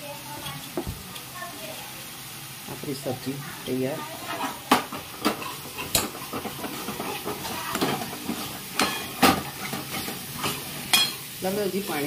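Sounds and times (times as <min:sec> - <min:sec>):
soft sizzle: 0:00.0 - 0:12.0
spoon stirring gravy: 0:04.2 - 0:11.0.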